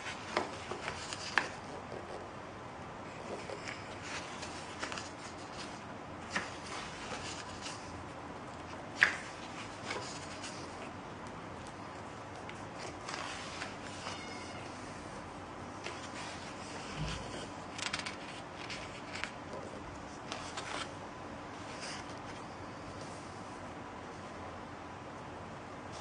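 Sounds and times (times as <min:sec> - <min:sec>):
book pages turning: 0:00.0 - 0:02.2, 0:03.1 - 0:14.8, 0:15.8 - 0:22.4
page snapping: 0:09.0 - 0:09.3.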